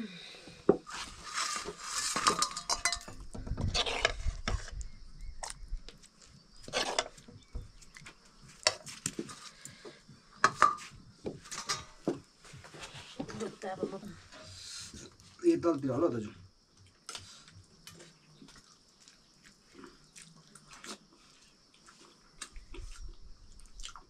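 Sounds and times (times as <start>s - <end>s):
metal dishes clinking and scraping: 1.3s - 4.7s, 6.6s - 7.3s, 10.4s - 12.1s.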